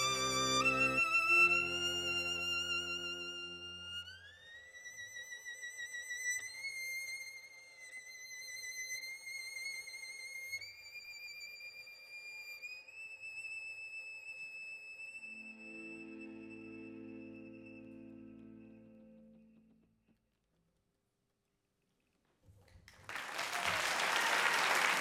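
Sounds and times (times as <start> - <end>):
lower accompanying notes: 0.0 - 4.6
solo violin: 0.0 - 19.6.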